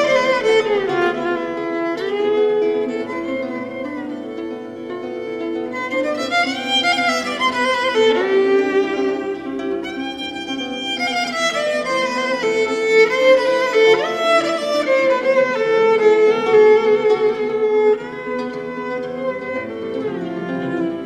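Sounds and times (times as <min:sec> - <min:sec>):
violin melody over strings: 0:00.0 - 0:21.0.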